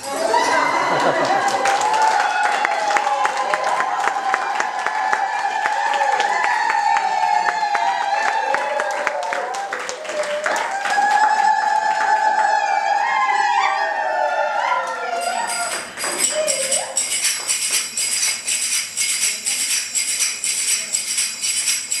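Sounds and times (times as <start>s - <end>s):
finger cymbals ringing: 15.2s - 22.0s.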